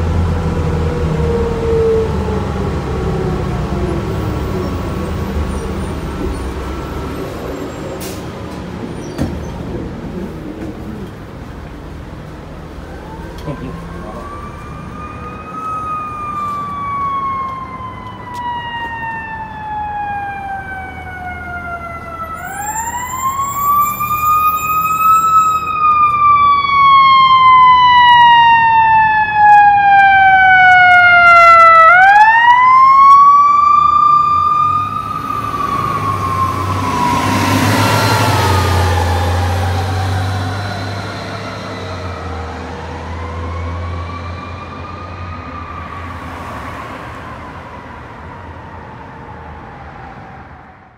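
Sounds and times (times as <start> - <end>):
fire engine siren wailing: 0.0 - 8.5, 10.1 - 50.9
heavy vehicle engine rumble: 0.0 - 26.6
road noise: 0.0 - 50.9.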